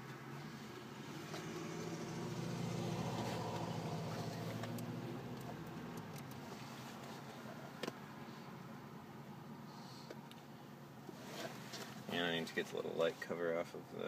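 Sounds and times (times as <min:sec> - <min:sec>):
car passing by: 0:00.4 - 0:05.6.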